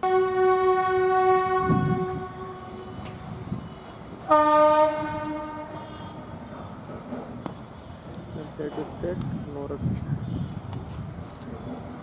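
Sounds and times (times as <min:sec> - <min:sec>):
loud horn blasts: 0:00.0 - 0:06.5.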